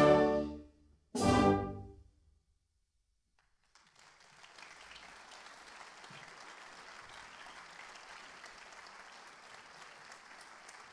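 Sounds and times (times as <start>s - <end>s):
audience applauding: 3.4s - 10.9s.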